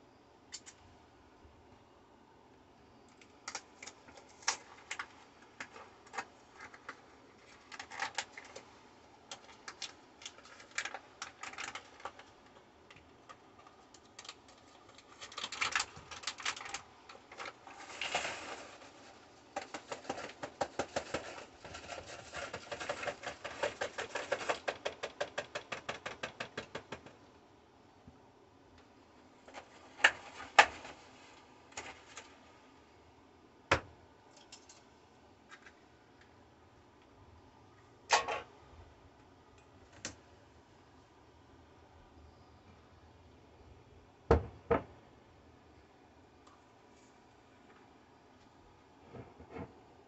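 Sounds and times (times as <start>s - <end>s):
paper bag crinkling and tearing: 13.7s - 24.9s.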